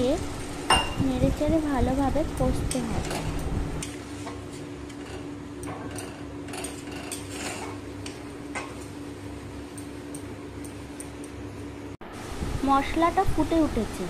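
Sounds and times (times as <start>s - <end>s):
steady hum: 0.0s - 14.0s
metal spatula scraping a pan: 6.0s - 7.8s.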